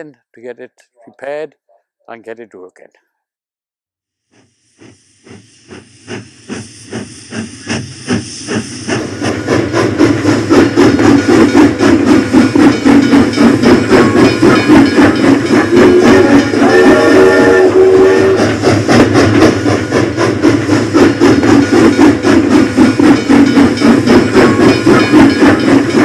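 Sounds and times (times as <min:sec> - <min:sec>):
steam locomotive exhaust chuffs: 0:04.2 - 0:26.0
hiss of steam: 0:04.4 - 0:26.0
steam whistle: 0:15.5 - 0:19.6.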